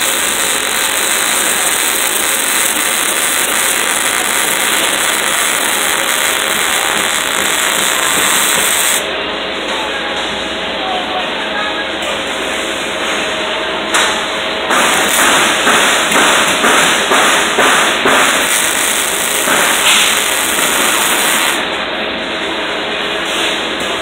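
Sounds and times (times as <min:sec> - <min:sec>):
welding arc crackling: 0:00.0 - 0:09.1, 0:14.7 - 0:21.7.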